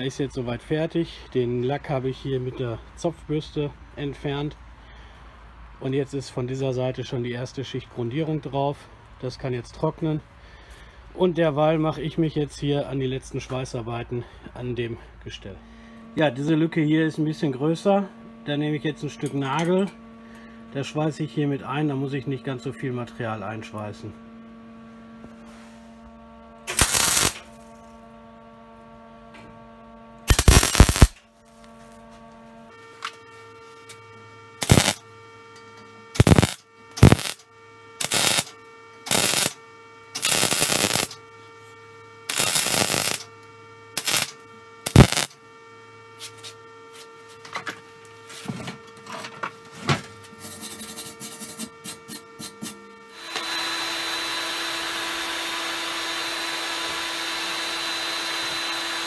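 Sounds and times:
faint steady hum: 0.0 - 49.6
welding arc crackling: 26.7 - 27.5, 30.3 - 31.2, 34.6 - 35.0, 36.2 - 37.4, 38.0 - 39.6, 40.2 - 41.2, 42.3 - 43.3, 44.0 - 45.4
heat gun blowing: 26.7 - 27.6, 30.3 - 31.2, 34.6 - 35.0, 36.2 - 37.4, 38.0 - 38.5, 39.1 - 39.6, 40.2 - 41.2, 42.3 - 43.3, 44.0 - 45.4, 53.1 - 59.0.

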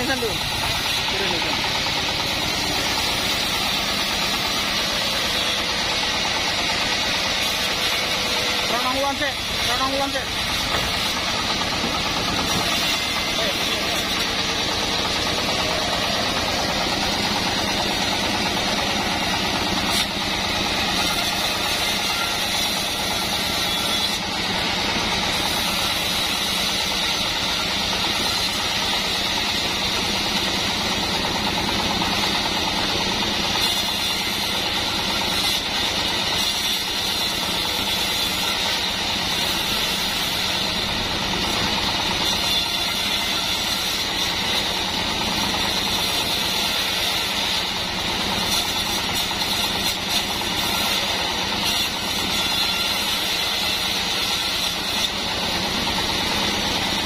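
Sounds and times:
band saw cutting wood: 0.0 - 57.0.

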